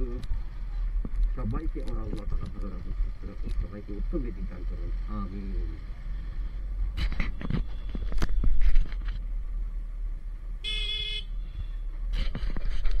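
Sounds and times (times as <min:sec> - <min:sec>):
motorcycle engine rumble: 0:00.0 - 0:13.0
motorcycle horn beep: 0:10.6 - 0:11.8.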